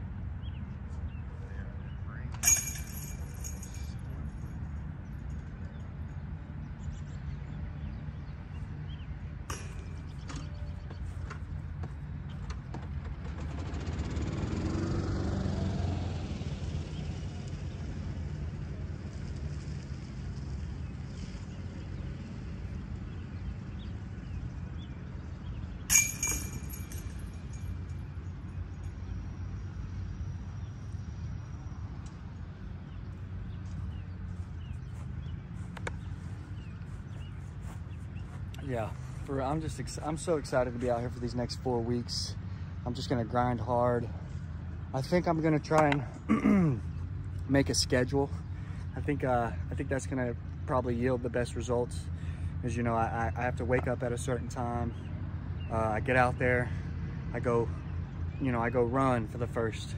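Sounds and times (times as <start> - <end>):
metallic clinks of chains: 2.4 - 4.4, 25.9 - 28.0
sharp ringing metallic clink: 2.4 - 5.9, 9.5 - 10.6, 25.8 - 29.2
passing vehicle: 11.6 - 59.9.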